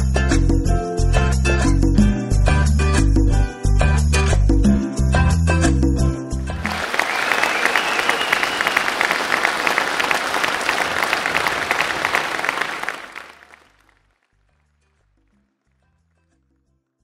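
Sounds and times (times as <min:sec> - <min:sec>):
crowd applauding: 0:06.6 - 0:14.0.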